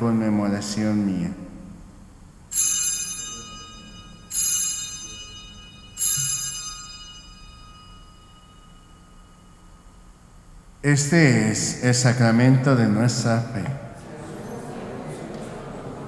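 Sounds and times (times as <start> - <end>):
altar bell ringing: 2.5 - 10.3.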